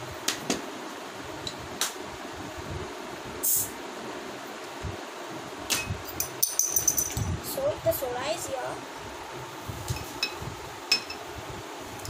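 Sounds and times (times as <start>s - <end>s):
carbonation hiss: 2.6s - 3.9s.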